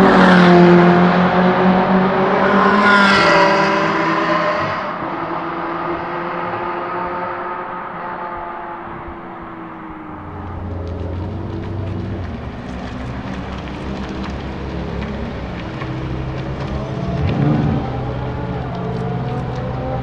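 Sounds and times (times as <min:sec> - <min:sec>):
distant car engines: 0:00.0 - 0:20.0
car engine at low revs: 0:10.2 - 0:20.0.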